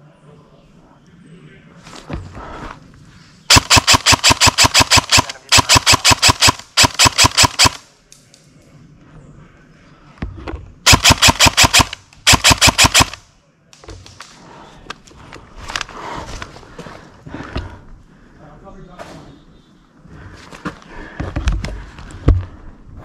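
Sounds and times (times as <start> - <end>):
airsoft rifle full-auto bursts: 3.5 - 7.8, 10.9 - 13.2.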